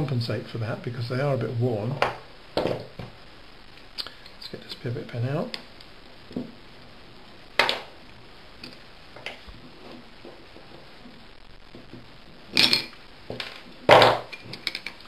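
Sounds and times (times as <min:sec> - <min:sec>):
metal parts handled on bench: 0:12.6 - 0:13.0, 0:13.9 - 0:15.0.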